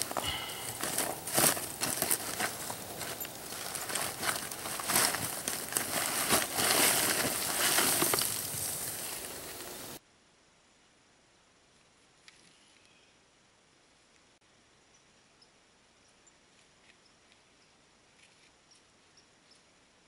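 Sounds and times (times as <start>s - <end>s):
hands crunching through charcoal: 0.0s - 10.0s
wrapping crinkling: 0.0s - 10.0s.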